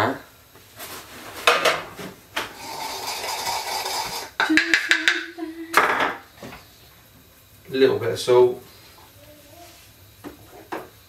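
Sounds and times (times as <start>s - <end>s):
rustling or scraping: 0.6s - 4.4s
knocks on worktop: 5.8s - 6.6s.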